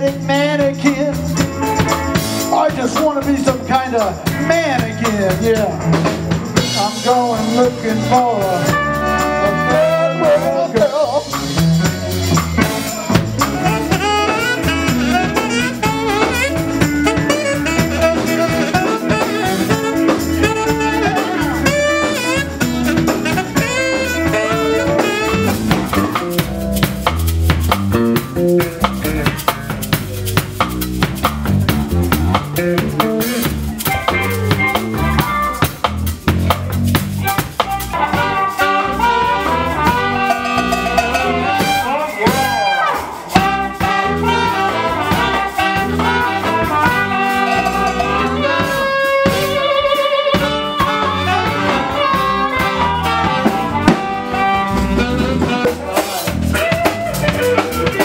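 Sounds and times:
saxophone playing: 0.0s - 6.0s, 6.6s - 58.0s
bass guitar groove: 0.0s - 58.0s
drum kit: 0.0s - 58.0s
harmonica through microphone: 6.8s - 11.3s, 12.0s - 26.2s, 37.4s - 58.0s.

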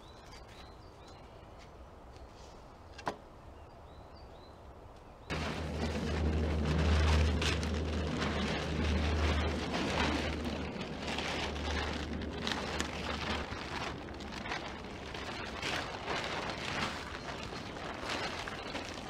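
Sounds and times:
low steady rumble: 5.3s - 19.0s
plastic tarp rustling: 5.3s - 19.0s.

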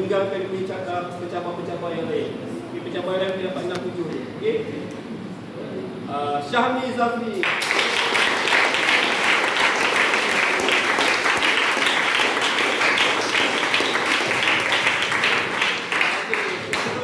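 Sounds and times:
crowd applause: 7.4s - 17.0s.

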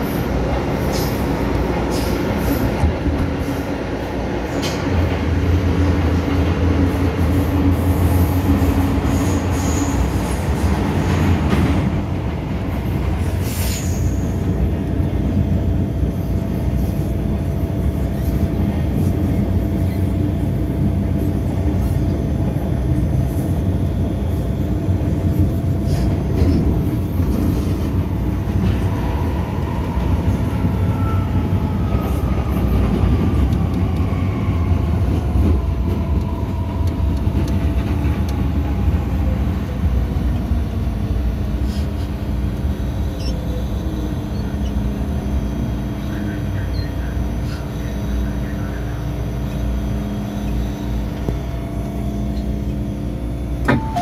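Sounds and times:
metro train wheels rumbling: 0.0s - 54.0s
train wheel screech: 9.1s - 10.4s.

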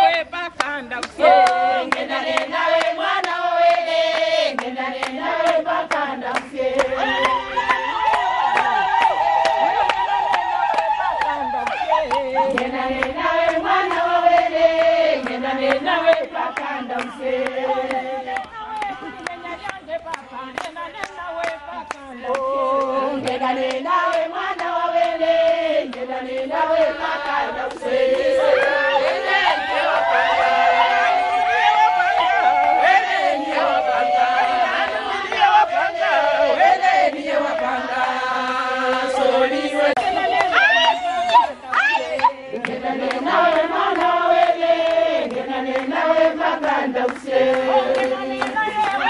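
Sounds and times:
women singing in chorus: 0.0s - 49.0s
hand clapping: 0.6s - 26.1s, 41.2s - 44.5s.

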